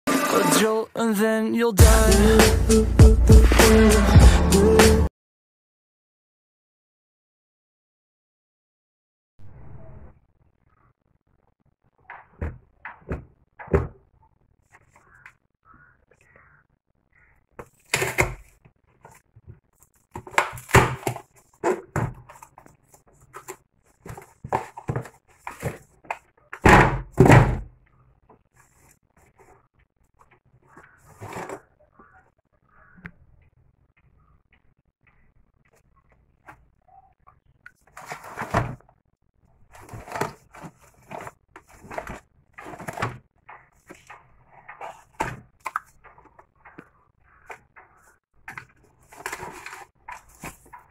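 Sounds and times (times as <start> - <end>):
thump and scrape of box: 38.0 - 38.8, 39.8 - 43.2
cardboard box rustling and tearing: 39.7 - 43.2, 49.0 - 50.8.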